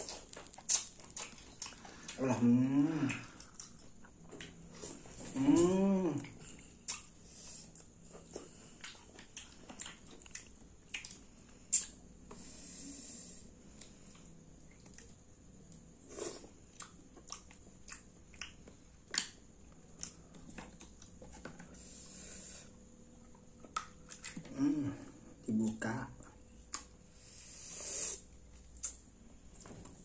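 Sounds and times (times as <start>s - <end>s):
chewing: 0.0s - 12.0s, 13.7s - 21.6s, 23.2s - 24.6s
wet sucking: 27.2s - 29.0s.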